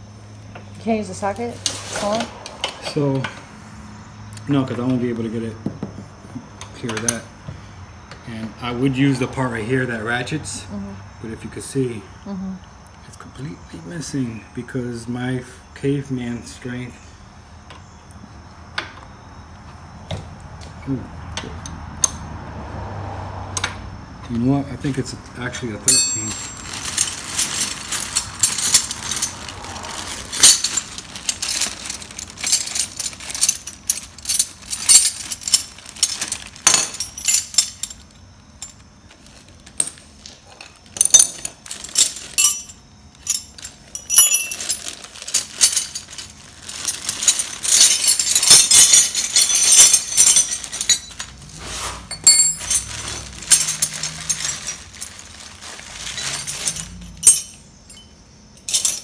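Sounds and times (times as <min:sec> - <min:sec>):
metal tools clinking and rattling: 0:01.2 - 0:03.4, 0:04.4 - 0:07.3, 0:24.7 - 0:59.0.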